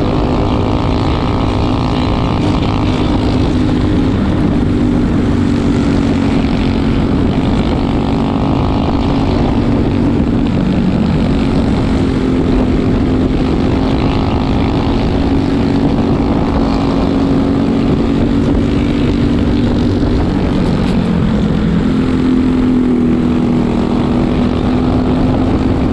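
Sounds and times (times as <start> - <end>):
kart engine at racing speed: 0.0 - 25.9
wind: 0.0 - 25.9.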